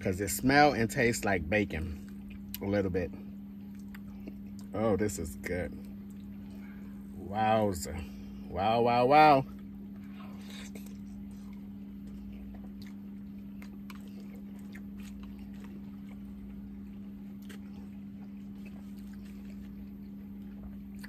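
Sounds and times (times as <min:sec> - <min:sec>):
steady low hum: 0:00.0 - 0:21.0
person chewing: 0:01.8 - 0:02.7, 0:03.6 - 0:04.9, 0:09.6 - 0:21.0.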